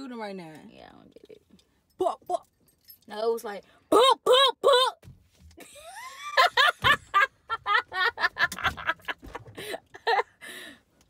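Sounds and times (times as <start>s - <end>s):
woman laughing: 5.6s - 10.4s.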